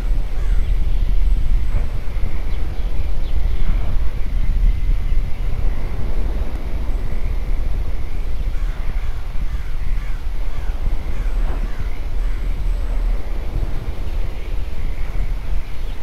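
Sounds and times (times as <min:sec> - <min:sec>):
low spooky rumble: 0:00.0 - 0:16.0
crows cawing: 0:08.6 - 0:12.5.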